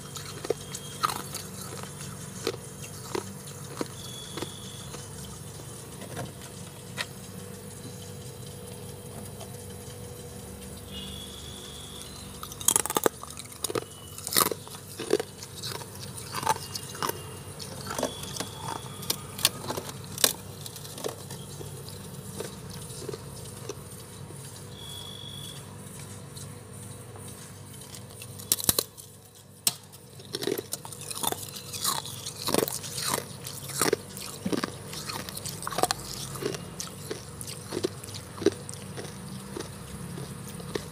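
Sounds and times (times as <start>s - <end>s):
crunchy chewing of frost: 0.0s - 40.9s
steady low hum: 0.0s - 40.9s.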